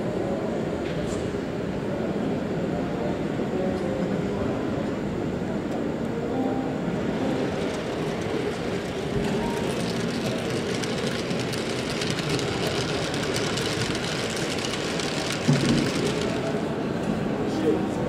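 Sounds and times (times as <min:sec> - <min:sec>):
exhibition hall background noise: 0:00.0 - 0:18.0
model train rolling rumble: 0:07.1 - 0:17.4.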